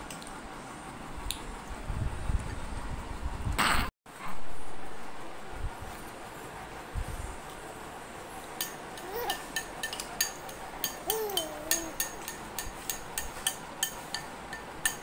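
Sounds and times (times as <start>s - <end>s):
baby cooing: 9.0s - 9.5s, 11.0s - 12.0s.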